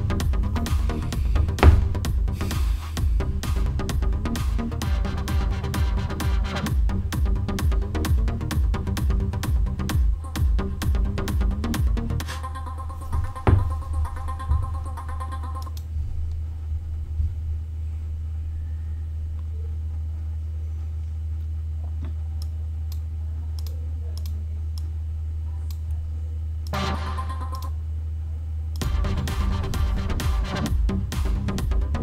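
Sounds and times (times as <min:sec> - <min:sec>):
electronic music: 0:00.0 - 0:15.9, 0:26.7 - 0:27.8, 0:28.8 - 0:32.0
steady low hum: 0:00.0 - 0:32.0.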